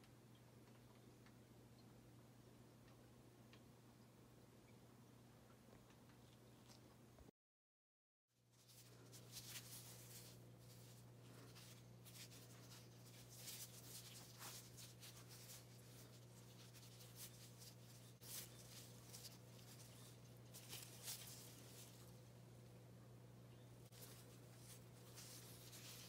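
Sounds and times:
plastic gloves rustling and crinkling: 8.4s - 22.9s, 23.6s - 26.0s
steady low hum: 8.4s - 26.0s.

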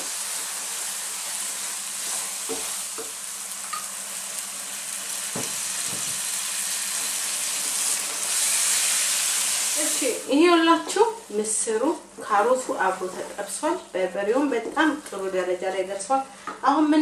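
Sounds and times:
food sizzling in a frying pan: 0.0s - 11.8s
wooden spoon scraping a pan: 12.6s - 13.6s.

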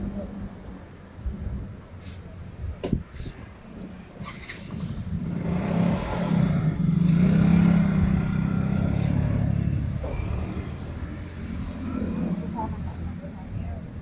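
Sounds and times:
vehicle engine passing by: 5.0s - 12.8s.

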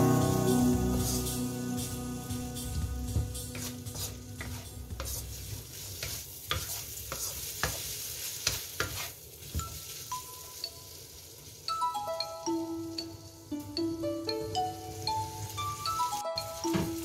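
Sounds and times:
food sizzling in wok: 0.0s - 17.0s
spatula scraping wok: 2.6s - 10.1s.

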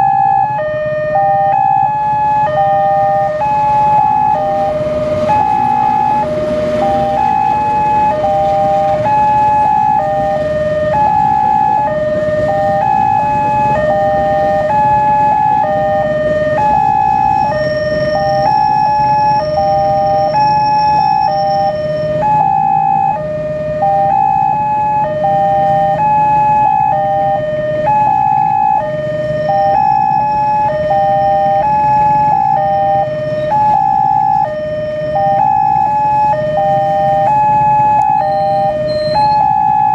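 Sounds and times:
two-tone crossing alarm: 0.0s - 39.9s
train passing: 3.2s - 22.1s.

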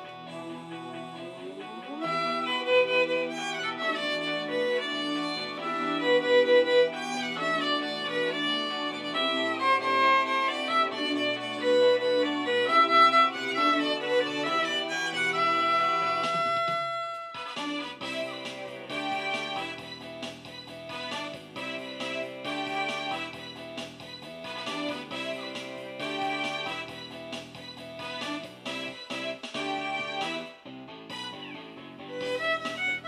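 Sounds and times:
karaoke backing track: 0.0s - 33.0s
violin playing a melody: 1.9s - 19.9s, 21.1s - 23.5s, 24.6s - 27.1s, 29.6s - 30.5s, 32.1s - 33.0s.

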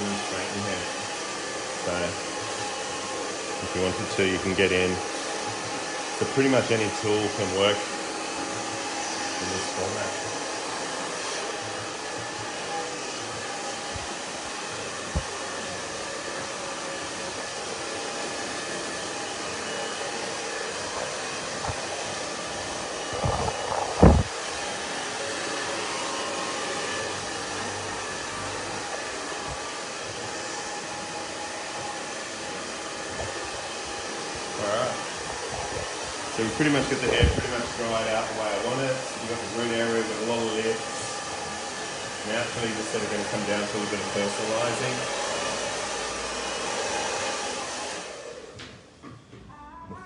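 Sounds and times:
hair dryer blowing: 0.0s - 49.3s
low thumps: 23.0s - 24.3s.

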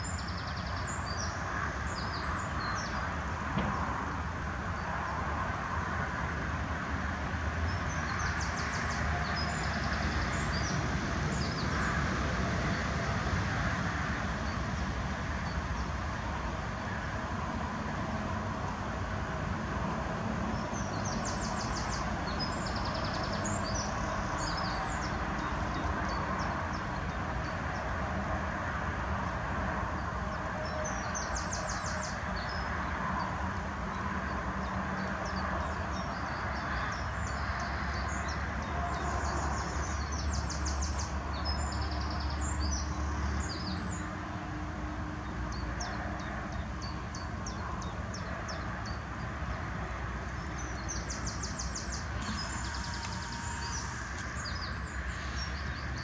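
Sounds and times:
songbird trilling and chirping: 50.3s - 56.0s.

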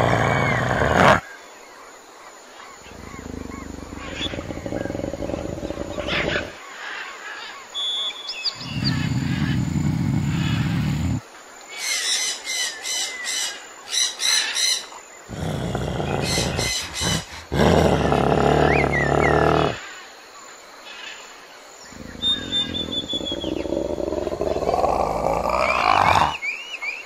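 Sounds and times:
deep animal growls: 0.0s - 1.2s, 2.8s - 6.6s, 8.6s - 11.2s, 15.3s - 19.8s, 21.8s - 26.4s
bird chirps and whistles: 22.2s - 23.6s.

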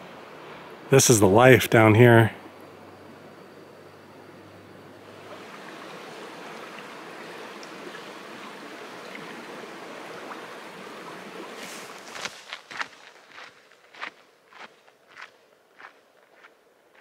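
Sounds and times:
shallow creek water rushing: 0.0s - 14.4s
footsteps on dirt trail: 11.6s - 17.0s.

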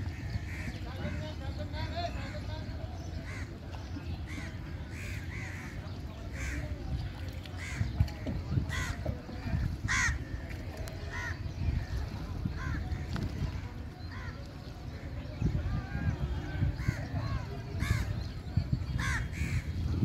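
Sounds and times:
crows cawing: 9.9s - 10.2s.

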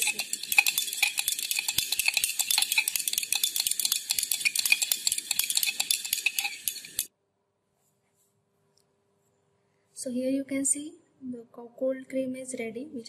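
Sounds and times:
stirrer clinking against glass beaker: 0.0s - 7.1s.

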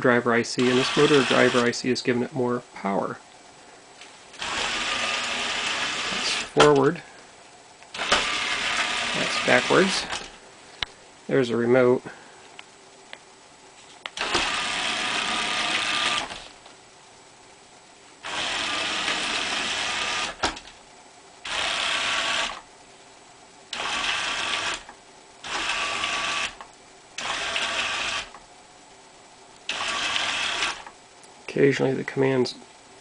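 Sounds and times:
robot vacuum gear motors running: 0.6s - 1.7s, 4.4s - 6.8s, 7.9s - 10.4s, 14.2s - 16.6s, 18.2s - 20.6s, 21.4s - 22.6s, 23.7s - 26.6s, 27.2s - 28.4s, 29.7s - 30.9s.

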